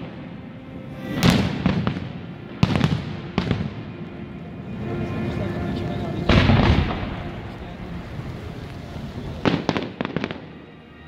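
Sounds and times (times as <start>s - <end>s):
fireworks bursting: 1.0s - 4.0s, 6.2s - 10.6s.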